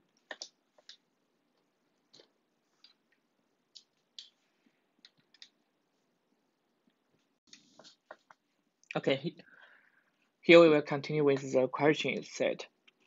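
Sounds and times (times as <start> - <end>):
faint irregular clicks: 0.1 - 5.7.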